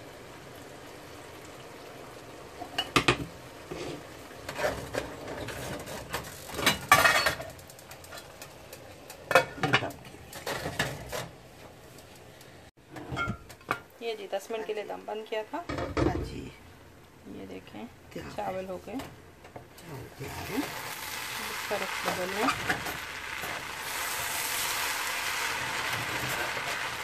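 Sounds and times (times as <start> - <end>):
low steady hiss: 0.0 - 27.0
cookware knocks and clinks: 13.0 - 13.8.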